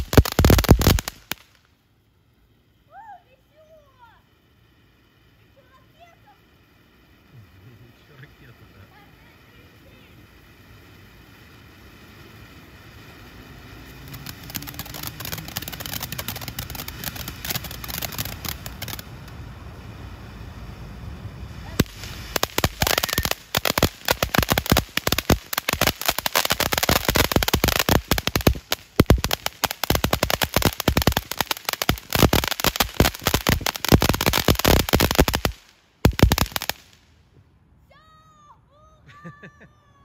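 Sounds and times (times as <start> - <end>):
sharp crack: 0.0 - 1.7, 13.6 - 19.4, 21.6 - 37.2
firework rapid crackling: 0.0 - 37.2
firework fountain hissing: 0.0 - 37.3.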